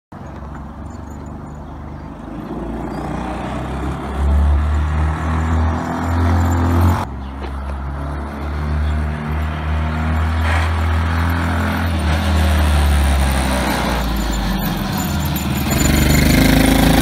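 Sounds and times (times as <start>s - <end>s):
small car engine running: 7.9s - 17.0s.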